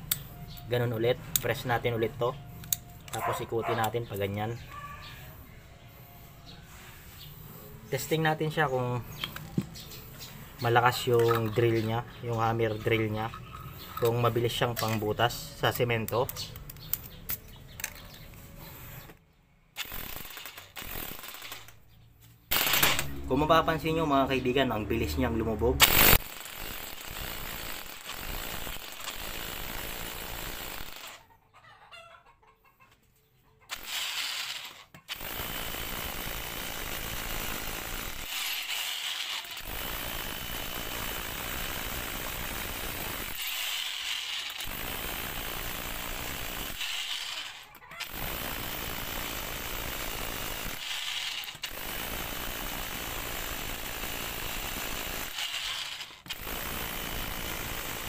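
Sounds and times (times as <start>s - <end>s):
hammer drill boring into concrete: 19.8s - 21.7s, 22.5s - 23.5s, 25.8s - 31.2s, 33.7s - 58.0s.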